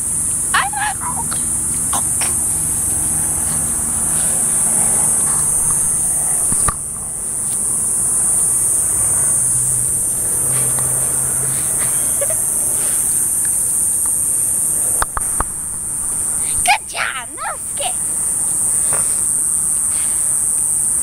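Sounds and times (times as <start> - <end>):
insects buzzing: 0.0 - 21.0
sharp clicks: 15.0 - 15.6.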